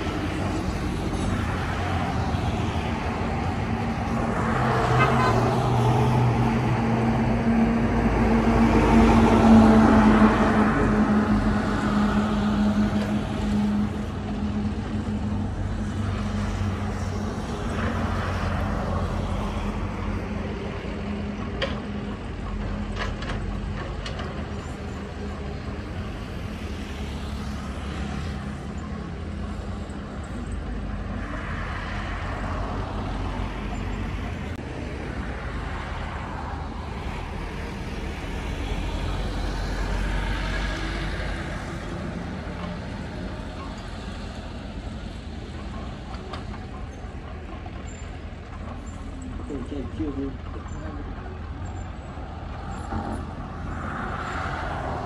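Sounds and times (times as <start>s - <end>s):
diesel engines running: 0.0s - 55.0s.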